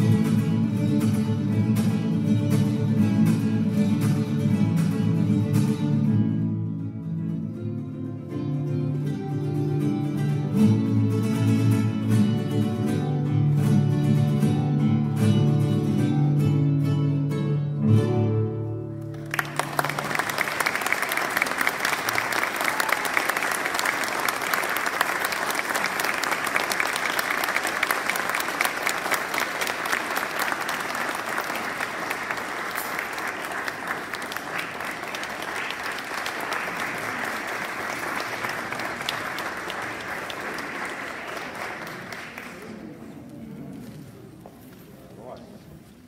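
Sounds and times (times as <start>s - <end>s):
classical guitar notes: 0.0s - 19.3s
audience applause: 19.1s - 43.8s.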